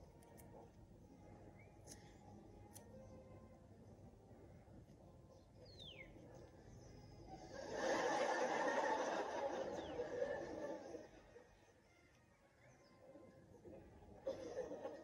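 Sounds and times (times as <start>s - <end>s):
studio audience laughter: 7.6s - 11.1s.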